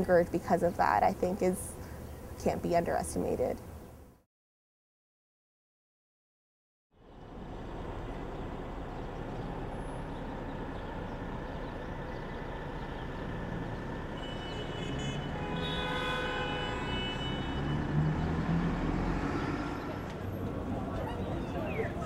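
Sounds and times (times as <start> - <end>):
passing vehicles rushing: 7.0 - 22.0.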